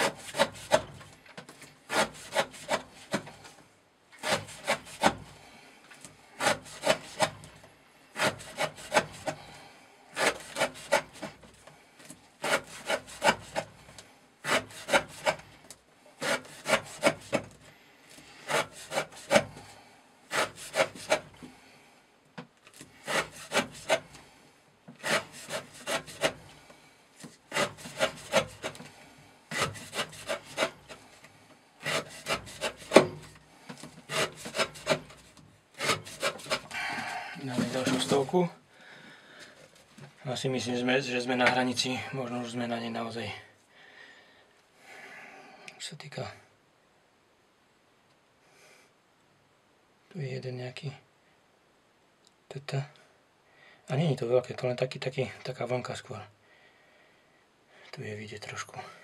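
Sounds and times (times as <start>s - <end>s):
knife slicing through rope: 4.2s - 5.3s, 6.4s - 7.4s, 10.2s - 11.4s, 12.4s - 13.7s, 14.4s - 15.5s, 16.2s - 17.5s, 20.3s - 21.3s, 23.0s - 24.1s, 25.0s - 26.4s, 27.5s - 28.8s, 29.5s - 31.0s, 31.8s - 33.3s, 34.1s - 35.2s, 35.8s - 36.7s.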